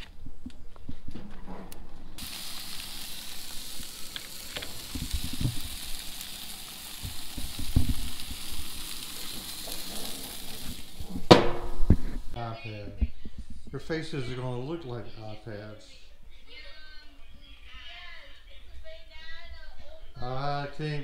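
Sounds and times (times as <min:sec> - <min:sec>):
meat sizzling on grill: 0:02.2 - 0:12.4.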